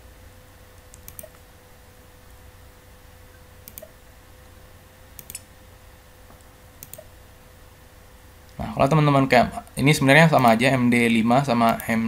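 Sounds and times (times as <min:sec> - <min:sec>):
faint room hum: 0:00.0 - 0:12.0
computer mouse clicking: 0:00.8 - 0:01.4, 0:03.6 - 0:04.0, 0:05.2 - 0:05.5, 0:06.4 - 0:07.1, 0:11.6 - 0:11.9.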